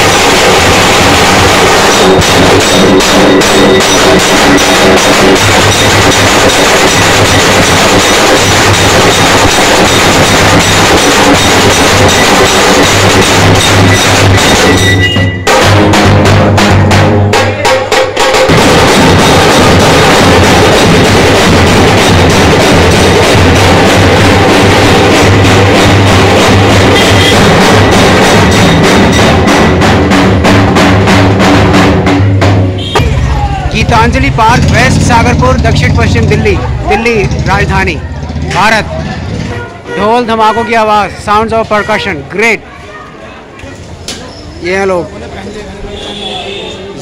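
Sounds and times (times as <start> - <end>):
loud distorted drums: 0.0 - 42.6.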